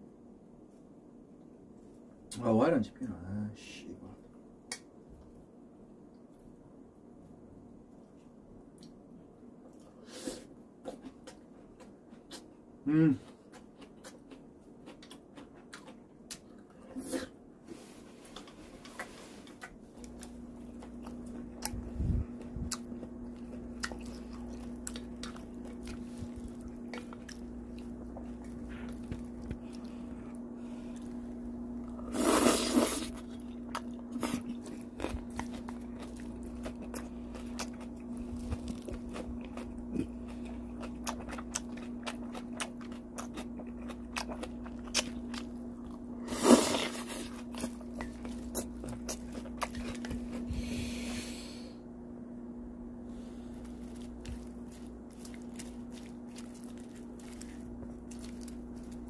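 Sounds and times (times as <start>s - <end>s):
steady low hum: 0.0s - 59.0s
chewing and crunching: 10.8s - 12.6s, 13.2s - 17.3s, 18.2s - 50.9s, 53.1s - 59.0s.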